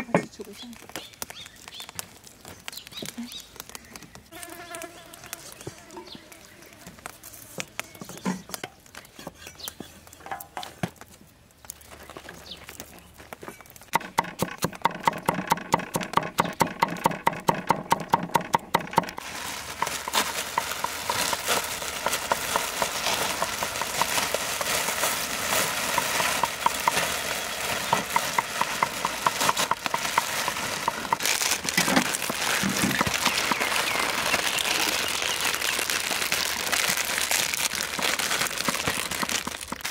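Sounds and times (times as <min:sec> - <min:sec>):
plastic packets crinkling and tearing: 0:00.3 - 0:08.0, 0:10.9 - 0:13.9, 0:19.1 - 0:39.9
cleaver chopping on wooden block: 0:13.9 - 0:19.2.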